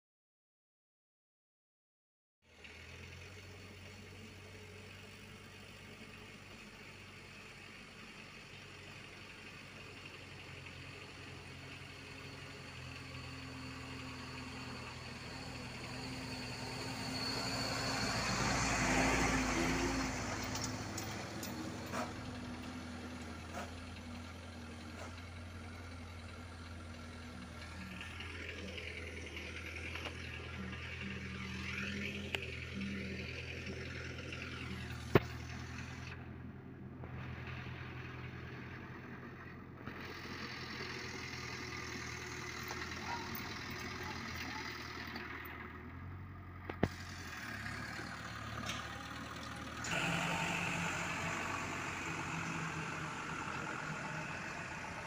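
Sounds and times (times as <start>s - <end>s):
truck diesel engine running: 2.5s - 55.0s.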